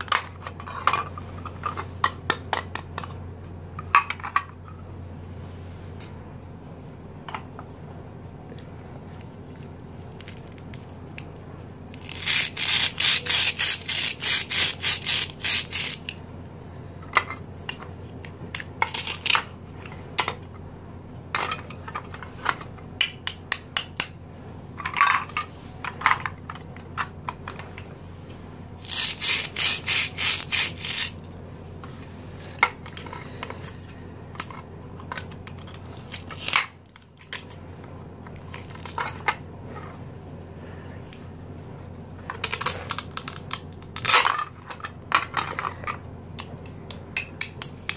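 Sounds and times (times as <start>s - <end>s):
plastic toy knife rasping: 12.0s - 16.2s, 28.8s - 31.2s
plastic toy pieces clicking: 12.0s - 16.2s, 28.8s - 31.2s.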